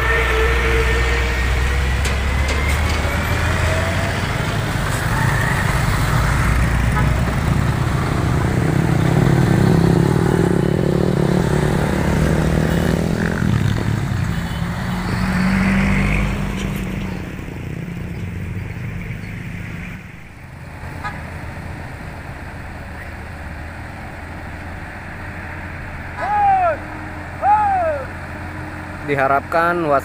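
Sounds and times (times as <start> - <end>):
motorcycles driving by: 0.0 - 21.6
car driving by: 0.0 - 30.0
truck engine rumbling past: 0.0 - 30.0.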